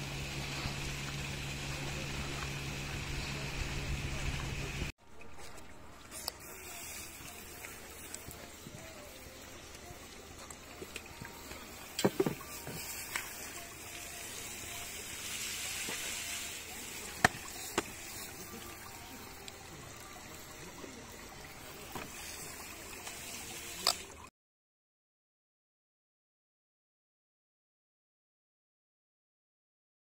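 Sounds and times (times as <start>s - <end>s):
hose nozzle spraying water: 6.1s - 9.9s, 10.5s - 20.4s, 21.4s - 24.3s.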